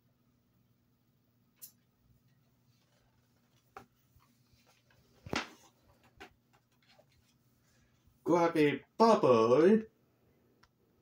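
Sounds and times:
book pages rustling: 2.6 - 7.6.

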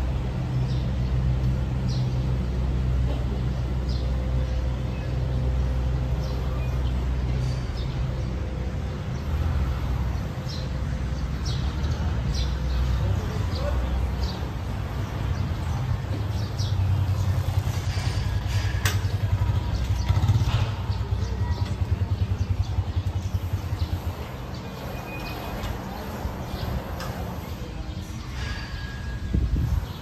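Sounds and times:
motorcycle engine running: 15.0 - 26.9.

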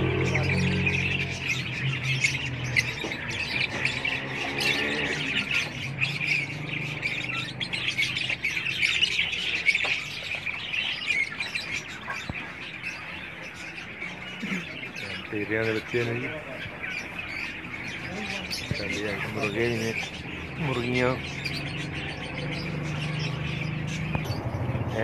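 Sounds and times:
parrots chirping and squawking: 0.0 - 25.0.

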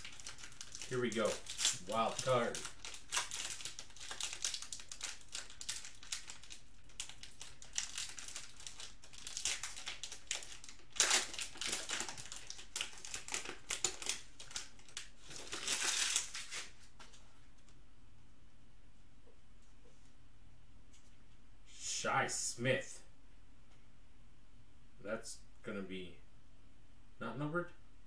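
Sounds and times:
foil card pack crinkling: 0.0 - 17.2.

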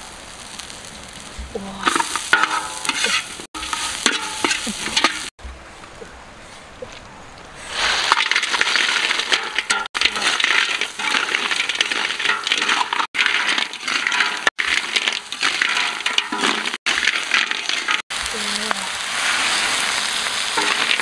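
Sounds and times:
loud sizzle: 0.0 - 5.4, 7.6 - 21.0
shells rattling in a wok: 1.8 - 5.3, 8.1 - 18.0, 19.0 - 21.0.

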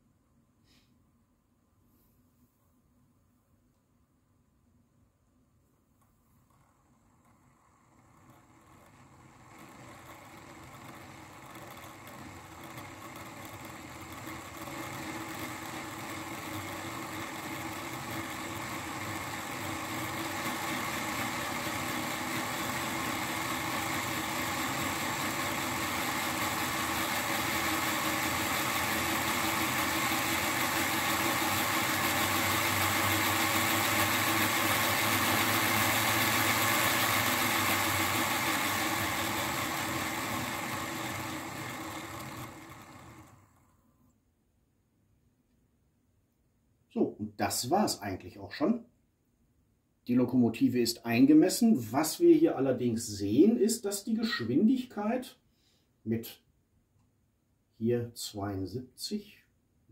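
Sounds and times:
model locomotive motor whirring: 6.4 - 43.7.

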